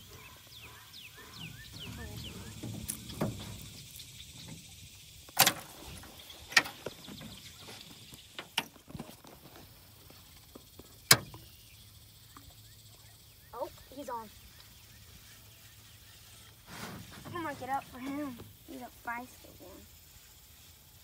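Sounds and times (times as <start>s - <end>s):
bird chirping: 0.0s - 9.1s, 10.1s - 16.6s.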